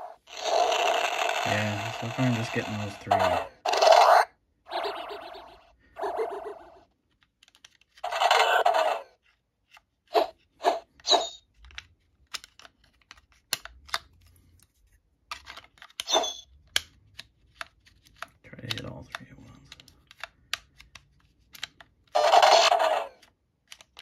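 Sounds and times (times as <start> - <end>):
toy electronic sound effects: 0.0 - 6.9, 8.0 - 9.1, 10.2 - 11.4, 16.0 - 16.5, 22.2 - 23.2.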